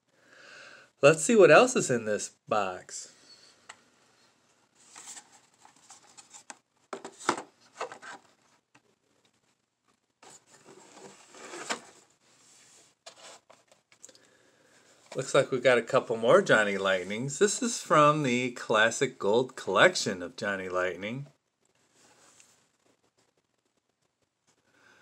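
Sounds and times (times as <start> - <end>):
cardboard box and packaging rustling: 4.8 - 8.5, 10.2 - 13.9.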